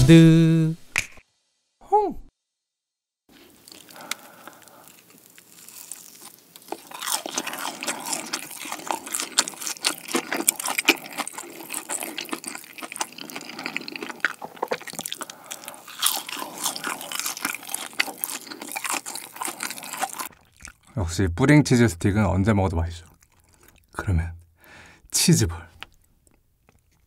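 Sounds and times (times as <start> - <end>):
crunching and chewing: 3.3 - 21.0, 23.0 - 24.0, 25.8 - 27.0.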